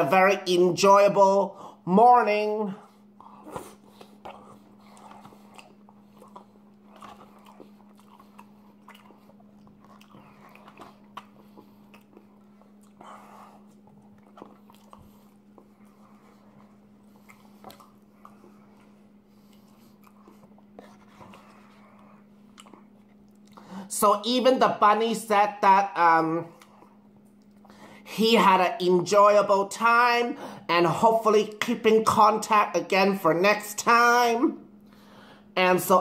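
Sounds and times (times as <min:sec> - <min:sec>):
steady low hum: 0:00.0 - 0:36.0
biting and chewing food: 0:02.8 - 0:23.8, 0:26.5 - 0:28.0
wet mouth clicks and smacks: 0:22.5 - 0:23.7, 0:26.6 - 0:27.7.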